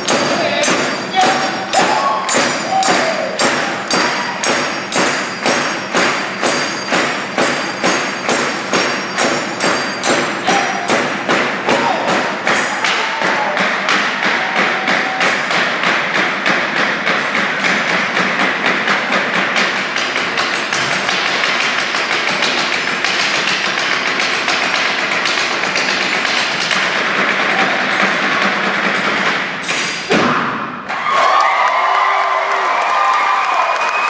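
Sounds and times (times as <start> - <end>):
crowd cheering: 1.1 - 4.8, 10.4 - 15.9, 27.4 - 28.5, 30.3 - 34.0.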